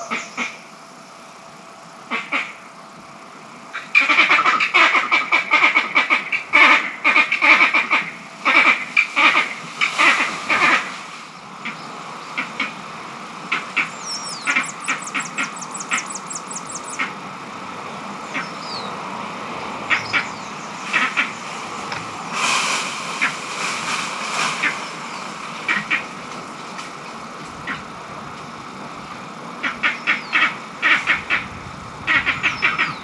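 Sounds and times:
monkeys chattering: 0:00.0 - 0:00.7, 0:03.7 - 0:17.2, 0:18.1 - 0:19.0, 0:19.9 - 0:22.4, 0:24.5 - 0:26.2, 0:27.6 - 0:28.0, 0:29.6 - 0:31.5
fast high ticking calls: 0:13.5 - 0:17.2, 0:18.2 - 0:19.0.

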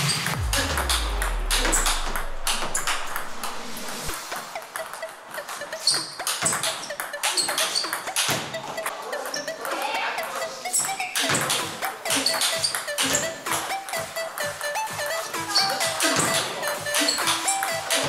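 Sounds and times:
background music: 0:00.0 - 0:18.0
ping pong ball clicking: 0:06.0 - 0:08.7.

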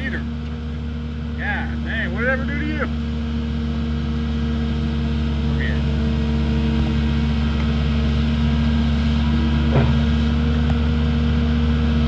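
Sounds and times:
excavator diesel engine running: 0:00.0 - 0:12.0
brief knock: 0:09.7 - 0:10.0.

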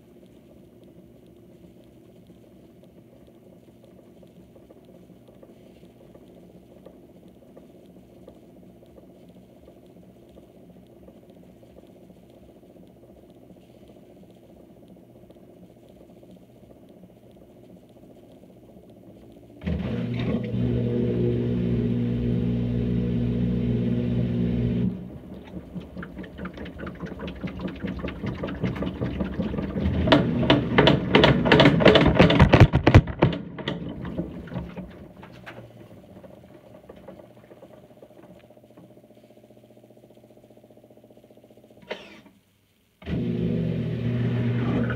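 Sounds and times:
washing machine motor drone: 0:18.0 - 0:42.3, 0:43.0 - 0:44.9
drum rattling and knocking: 0:25.3 - 0:38.3.

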